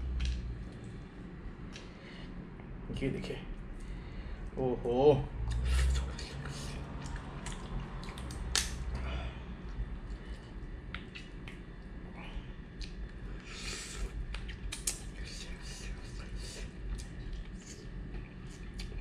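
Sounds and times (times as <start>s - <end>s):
wet squishing: 6.7s - 12.0s
crab shell cracking: 7.4s - 8.8s.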